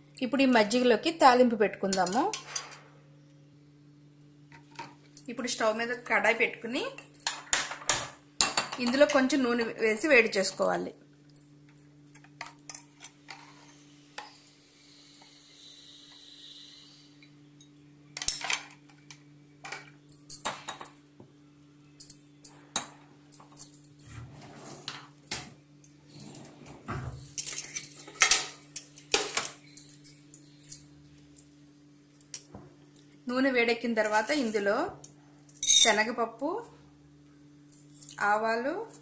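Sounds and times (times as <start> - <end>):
metal containers clinking: 35.6 - 36.0.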